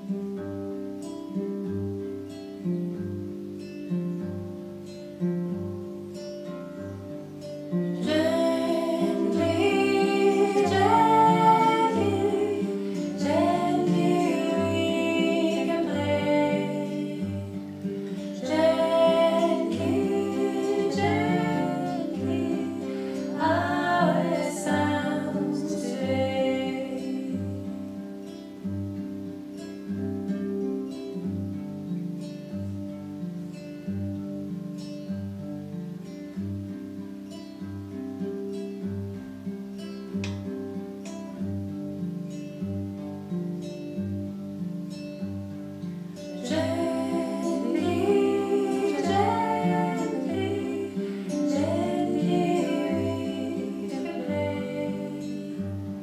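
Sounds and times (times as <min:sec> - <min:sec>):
classical guitar playing: 0:00.0 - 0:56.0
woman singing gently: 0:08.0 - 0:27.9, 0:46.4 - 0:56.0.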